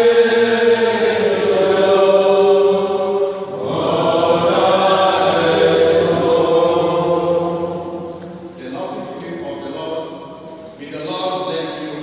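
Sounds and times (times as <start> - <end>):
mixed voices singing a hymn: 0.0 - 12.0.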